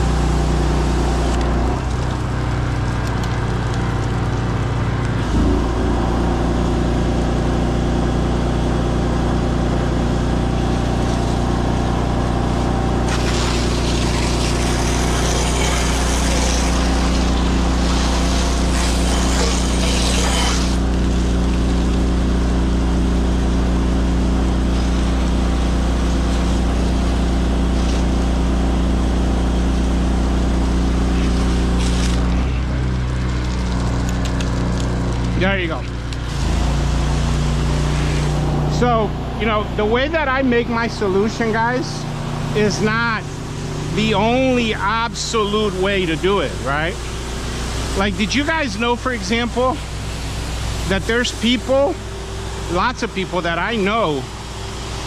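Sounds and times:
gas engine running: 0:00.0 - 0:55.0
pressure washer spray hiss: 0:13.1 - 0:20.9.

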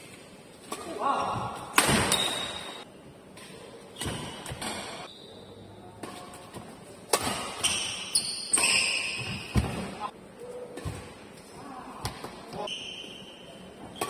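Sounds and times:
racket hitting shuttlecock: 0:00.6 - 0:02.7, 0:06.0 - 0:10.0
shoes squeaking on floor: 0:07.6 - 0:09.8, 0:12.6 - 0:14.0.

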